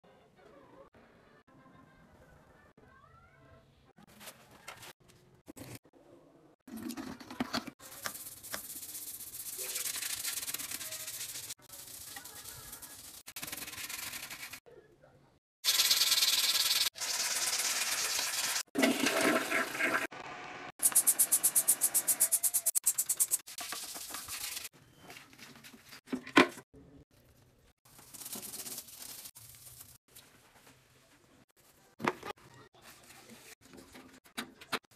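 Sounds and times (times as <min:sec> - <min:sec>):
toilet brush scrubbing bowl: 0:06.7 - 0:14.6, 0:15.7 - 0:20.1.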